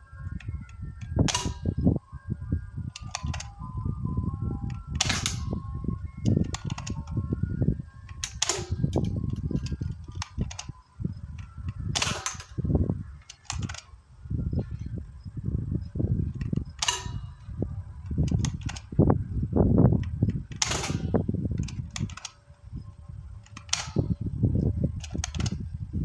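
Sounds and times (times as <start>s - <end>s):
airsoft gun shots: 1.3s - 1.7s, 5.0s - 5.5s, 8.2s - 8.9s, 11.9s - 12.6s, 16.8s - 17.3s, 20.5s - 22.3s, 23.6s - 24.1s.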